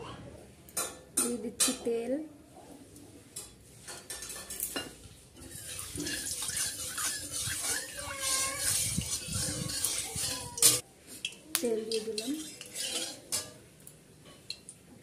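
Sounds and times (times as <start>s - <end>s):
spatula scraping steel pan: 5.4s - 10.8s, 11.8s - 13.6s.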